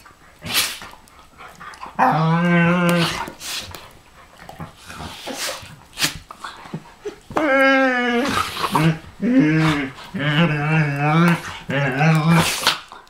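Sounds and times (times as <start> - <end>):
dogs huffing and snapping: 0.0 - 13.0
dog moaning growl: 1.6 - 3.4, 7.0 - 13.0.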